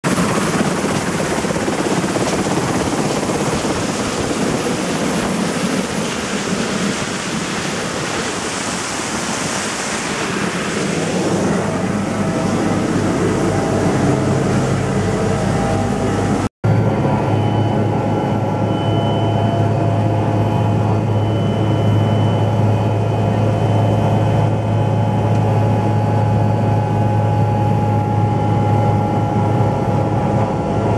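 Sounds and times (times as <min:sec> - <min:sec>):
helicopter engines and rotor: 0:00.0 - 0:30.9
high-pitched whine: 0:00.1 - 0:30.9
low steady cabin hum: 0:07.0 - 0:30.9.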